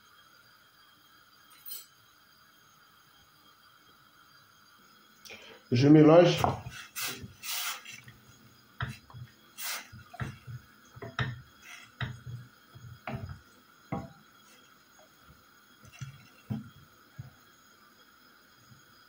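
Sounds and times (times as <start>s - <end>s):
wooden spoon knocking pot: 6.4s - 7.3s, 8.8s - 9.3s, 9.9s - 14.3s, 15.8s - 17.4s.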